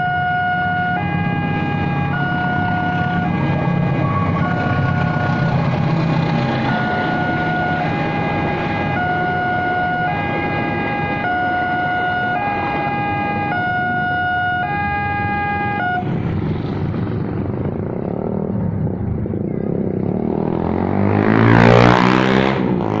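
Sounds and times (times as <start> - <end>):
level crossing two-tone alarm: 0.0 - 5.8, 6.5 - 16.0
motorbike passing: 0.0 - 23.0
passing train rumble: 0.0 - 23.0.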